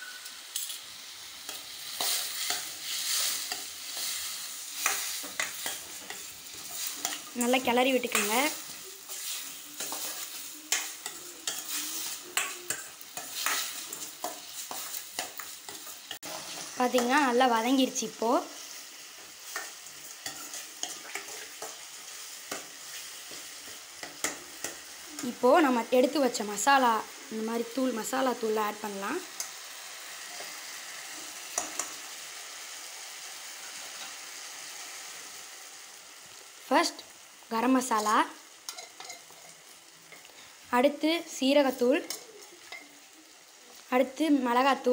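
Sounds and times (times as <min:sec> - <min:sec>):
vegetables sizzling in oil: 0:00.0 - 0:44.9
spatula scraping a metal pan: 0:09.0 - 0:16.7, 0:19.5 - 0:24.9, 0:38.7 - 0:39.6.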